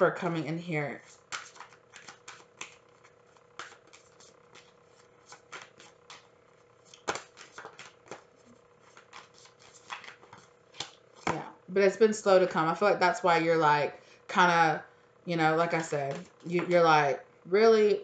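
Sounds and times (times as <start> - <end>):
cards shuffled by hand: 1.0 - 11.4, 15.8 - 16.6.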